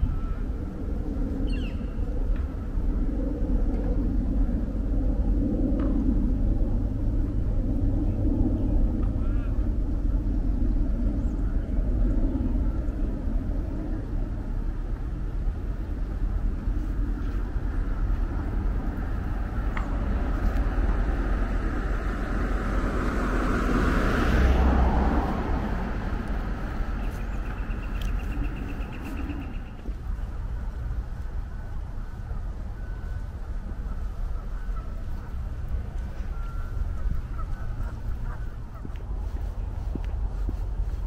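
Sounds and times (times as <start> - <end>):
road traffic rumble: 0.0 - 41.0
vehicle passing close by: 17.4 - 30.7.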